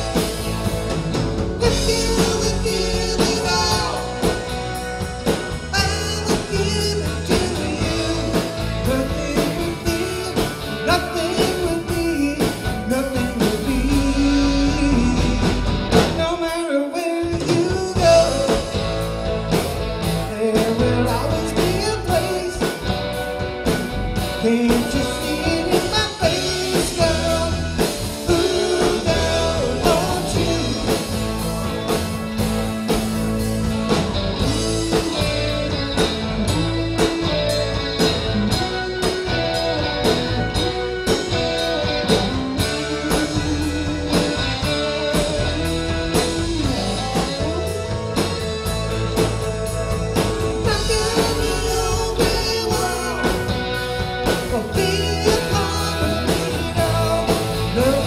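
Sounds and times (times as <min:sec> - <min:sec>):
guitar: 0:00.0 - 0:58.0
rock band playing: 0:00.0 - 0:58.0
person singing: 0:01.6 - 0:04.4, 0:05.7 - 0:19.1, 0:20.2 - 0:23.1, 0:24.3 - 0:31.5, 0:38.6 - 0:48.2, 0:50.2 - 0:58.0.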